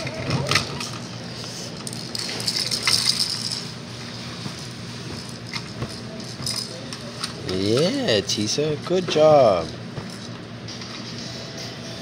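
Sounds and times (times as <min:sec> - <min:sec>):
steady low hum: 0:00.0 - 0:12.0
plastic toy rattling and clacking: 0:01.8 - 0:03.6.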